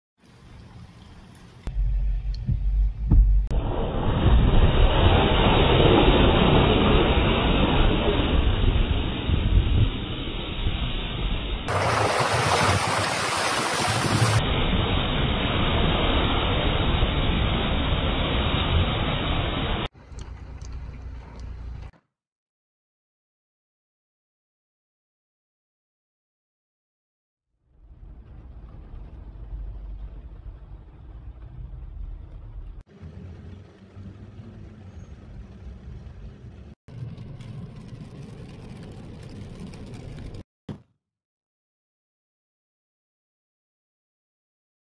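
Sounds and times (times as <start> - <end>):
car tyre splashing through water: 2.8 - 21.6, 27.8 - 40.4
wind on microphone: 11.8 - 14.4
car driving on wet road: 27.7 - 40.4.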